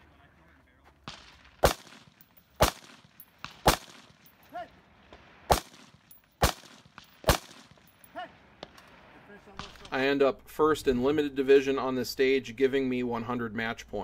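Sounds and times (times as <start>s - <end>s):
rifle shots with echo: 1.0s - 10.1s.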